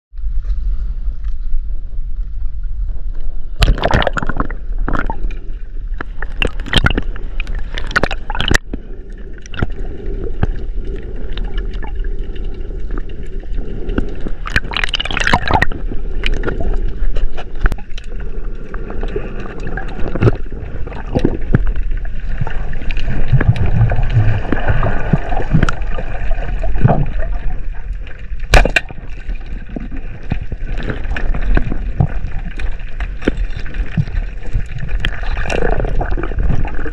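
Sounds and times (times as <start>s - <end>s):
water rushing underwater: 0.6s - 36.9s.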